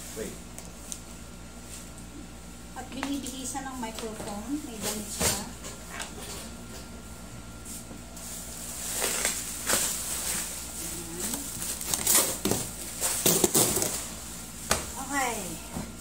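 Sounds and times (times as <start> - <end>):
bubble wrap crinkling: 8.2 - 14.4.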